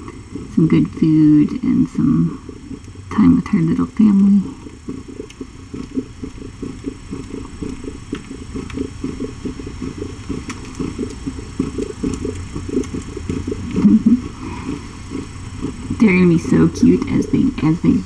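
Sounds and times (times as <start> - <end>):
cat purring: 0.0 - 18.0
faint ticks: 2.4 - 13.8.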